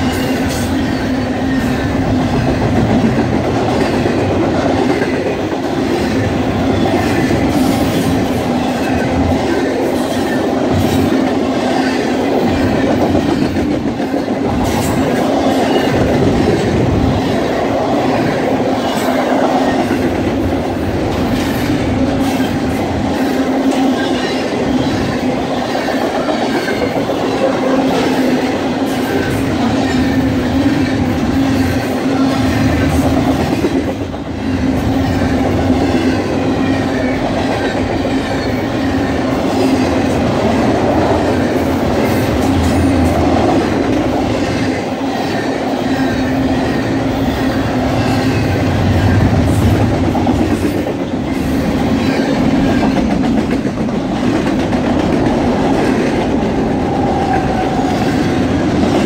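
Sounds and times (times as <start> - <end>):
freight train wheels rumbling: 0.0 - 59.0.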